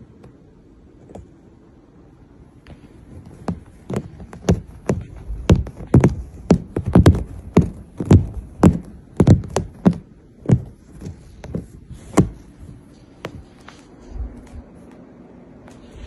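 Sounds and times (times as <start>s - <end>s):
kitten clawing fabric sofa: 2.7s - 14.6s.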